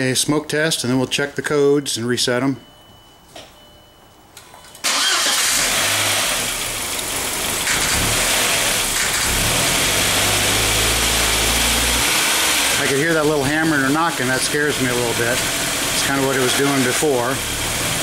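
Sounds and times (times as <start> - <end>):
car engine starting: 4.8 - 18.0
engine running rough with knocking: 7.0 - 12.8.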